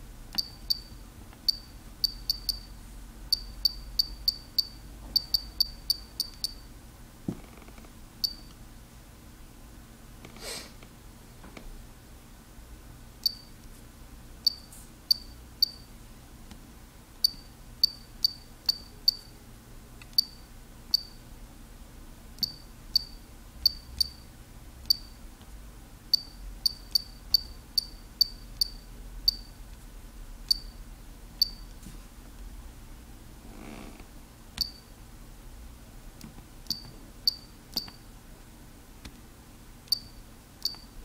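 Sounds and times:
faint steady hum: 0.0 - 41.0
short high-pitched electronic beeps: 1.5 - 2.7.

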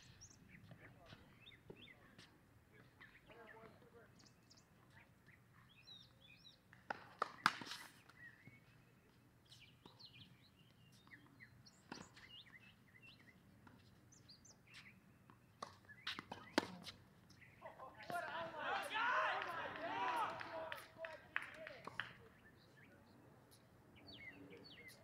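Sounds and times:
birds chirping: 0.0 - 25.0
tennis ball struck and bouncing: 14.8 - 17.0.

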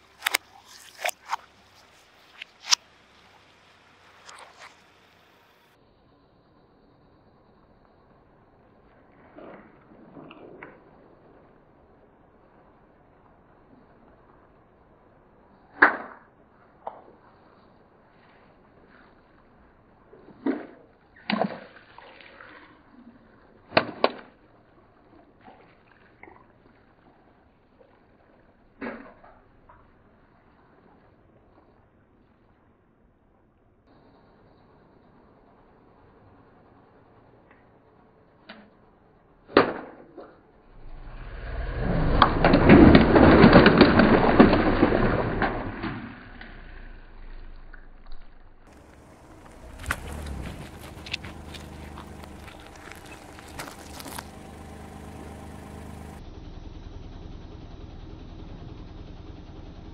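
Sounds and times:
water spraying and splashing: 0.0 - 5.4, 40.7 - 55.6
water balloons popping: 42.1 - 46.6, 48.6 - 54.8.

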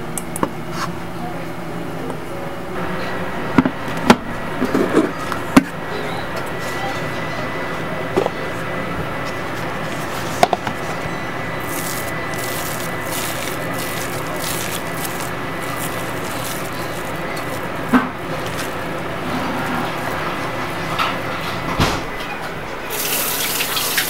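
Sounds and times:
hands squishing moist rice bran: 11.6 - 20.8.

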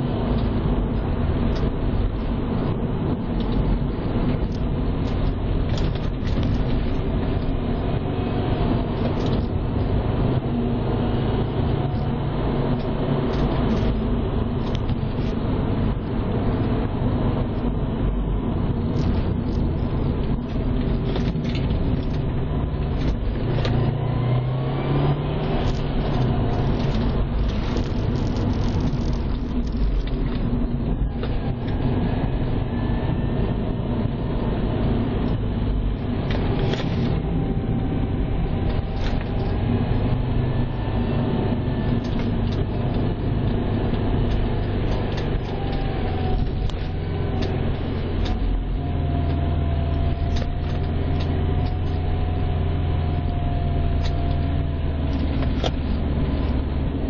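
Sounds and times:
car engine running: 0.0 - 57.0
tyre and road noise: 0.0 - 57.0.

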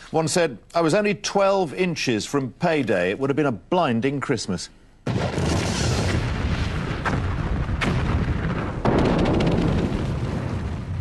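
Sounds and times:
explosion-like rumble: 5.1 - 11.0
sharp cracks and crackling: 5.1 - 11.0.

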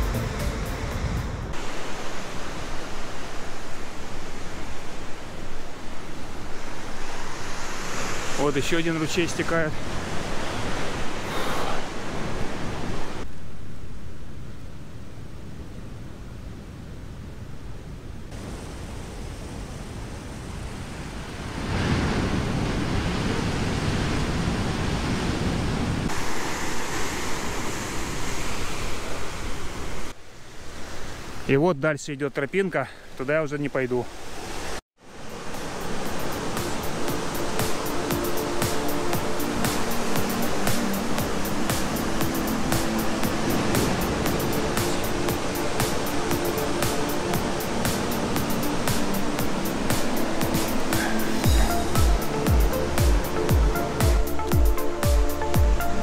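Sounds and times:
background music: 0.0 - 1.5, 36.0 - 56.0
ocean surf breaking: 0.0 - 13.3, 18.3 - 31.7, 32.6 - 56.0
wind: 0.0 - 56.0
stream cascading: 1.5 - 13.4, 18.3 - 56.0.

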